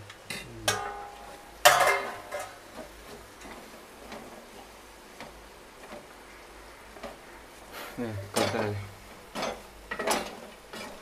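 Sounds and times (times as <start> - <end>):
ladle clinking metal pot: 0.3 - 2.6.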